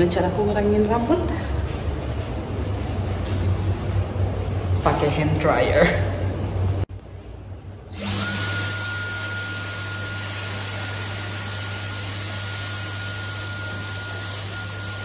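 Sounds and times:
hand dryer running: 0:07.9 - 0:15.0.

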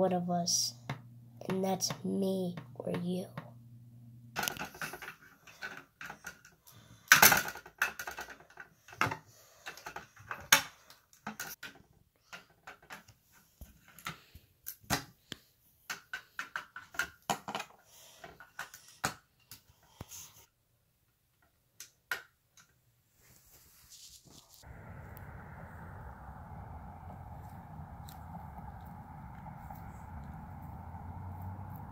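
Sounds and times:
plastic bricks clicking and clattering: 0:04.4 - 0:11.8.

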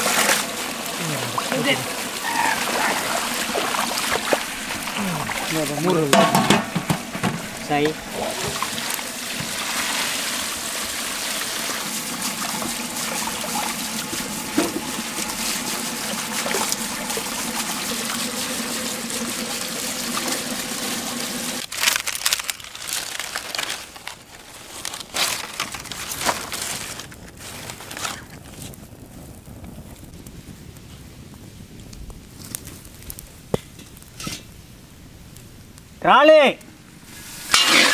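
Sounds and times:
water splashing in metal pot: 0:00.0 - 0:21.6, 0:37.4 - 0:37.9
fire crackling: 0:00.0 - 0:37.9.

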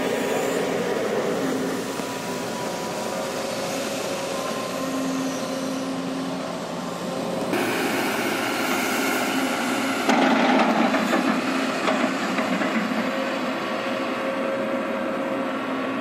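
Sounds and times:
excavator diesel engine: 0:00.0 - 0:16.0
sharp knocks and clatter: 0:10.0 - 0:13.0.

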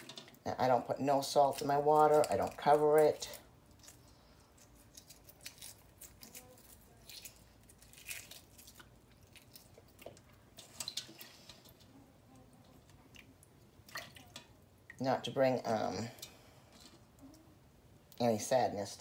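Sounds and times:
egg shells cracking and peeling: 0:00.0 - 0:11.9.

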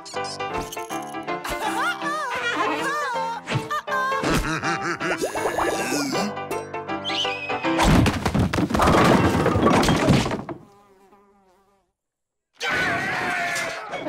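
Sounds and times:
cartoon brawl crash and clatter: 0:07.8 - 0:10.6.

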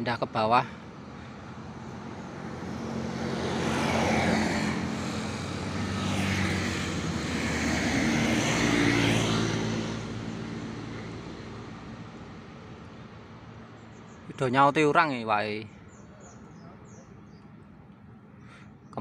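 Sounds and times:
vehicle engine noise: 0:00.0 - 0:14.6.

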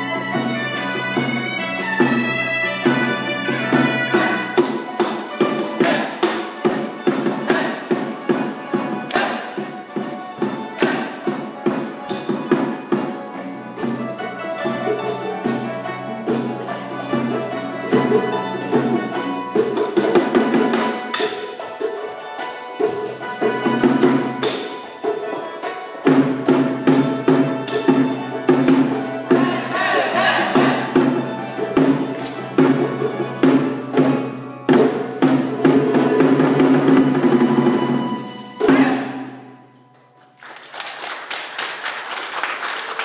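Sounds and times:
hammered dulcimer ensemble: 0:00.0 - 0:40.3
jingling percussion: 0:00.0 - 0:43.0
audience applause: 0:40.2 - 0:43.0.

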